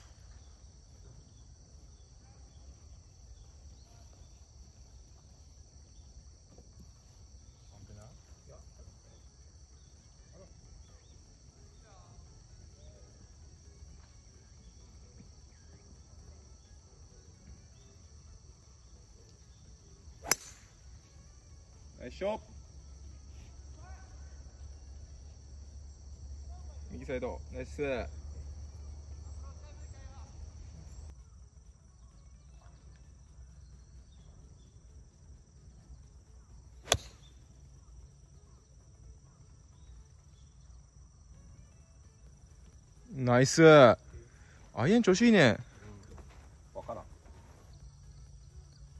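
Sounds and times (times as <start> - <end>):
faint insect chirps: 0.0 - 48.9
insect chorus drone: 0.0 - 48.9
golf club striking ball: 20.2 - 20.8, 36.8 - 37.3.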